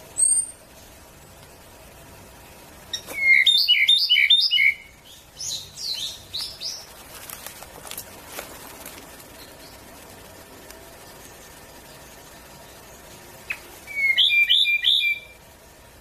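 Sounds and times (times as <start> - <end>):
bird singing: 0.0 - 1.4, 2.8 - 7.1, 9.1 - 16.0.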